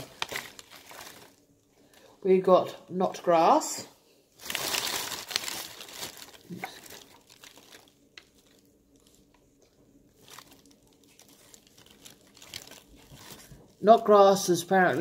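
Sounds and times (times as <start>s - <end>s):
paper wrap crinkling: 0.0s - 2.0s, 4.4s - 9.4s, 10.1s - 13.8s.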